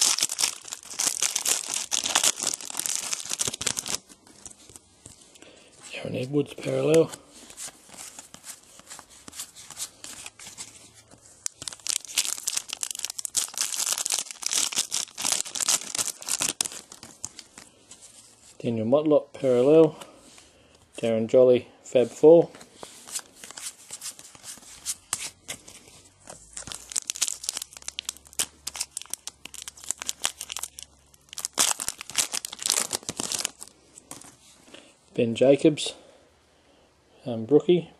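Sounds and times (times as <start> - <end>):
wrapper tearing and crinkling: 0.0 - 4.8, 11.4 - 17.8, 26.3 - 34.3.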